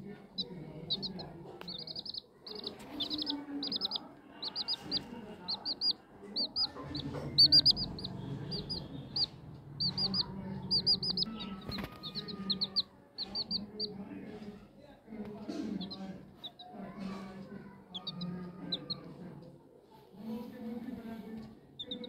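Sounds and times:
chicks peeping: 0.0s - 14.2s, 15.2s - 19.2s, 21.8s - 22.0s.

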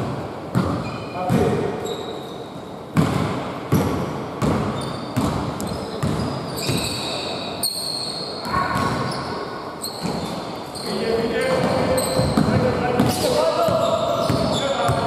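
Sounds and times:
basketball bouncing on hardwood: 0.5s - 1.5s, 3.0s - 6.8s, 11.6s - 15.0s
sneakers squeaking on wood: 0.5s - 15.0s.

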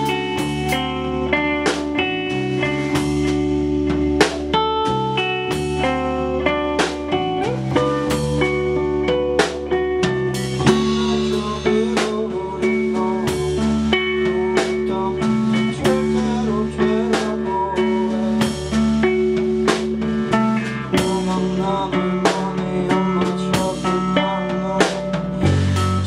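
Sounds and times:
drum kit beat: 0.0s - 26.0s
electric guitar: 0.0s - 26.0s.

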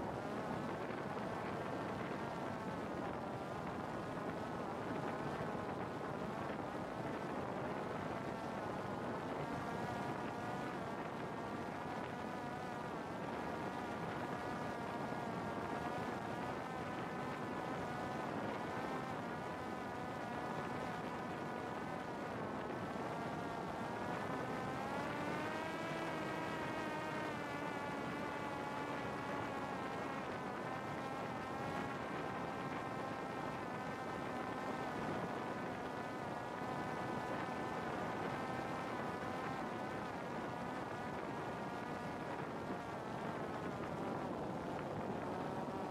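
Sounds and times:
drone motor buzzing whine: 13.4s - 39.4s.

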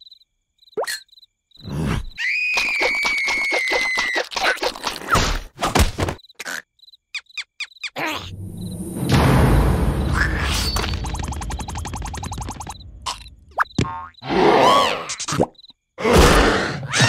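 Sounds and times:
cricket-like chirps: 0.0s - 3.8s, 6.2s - 14.3s, 15.0s - 16.0s
cartoon creature squeal: 2.1s - 4.6s.

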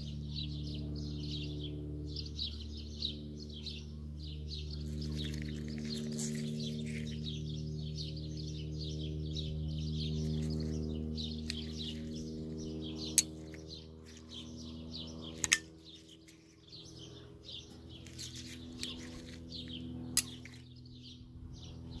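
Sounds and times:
small birds chirping: 0.0s - 22.0s
sharp clicks: 13.0s - 14.5s, 15.3s - 16.6s, 20.2s - 20.7s.

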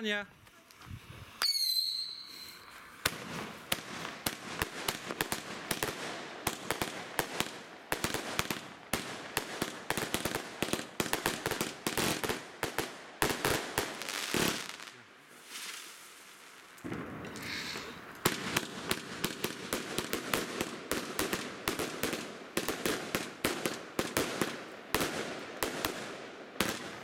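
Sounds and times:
firework crackling: 0.0s - 27.0s
firework whistle: 1.4s - 3.0s
firework shots and bursts: 1.4s - 27.0s.

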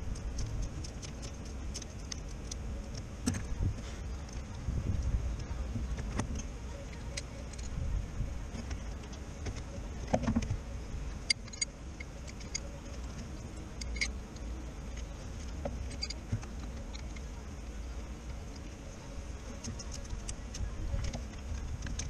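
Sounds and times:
low steady rumble: 0.0s - 22.0s.

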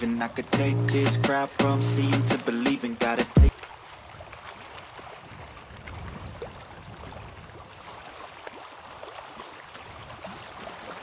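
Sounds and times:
small waves lapping: 0.0s - 11.0s
light water splashes: 2.4s - 11.0s
wind rumble on microphone: 4.0s - 8.2s.

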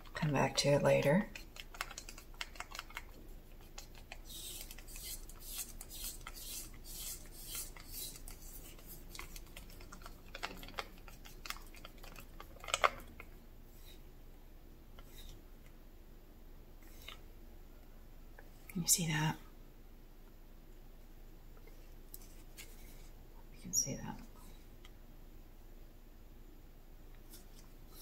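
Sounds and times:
stick scraping plastic cup: 1.3s - 13.0s.

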